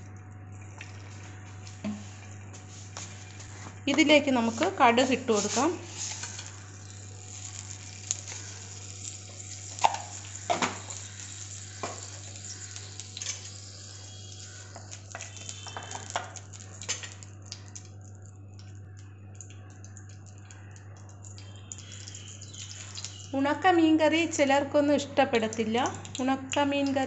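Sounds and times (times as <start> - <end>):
seeds sizzling in hot oil: 4.4 - 18.0, 18.9 - 23.6.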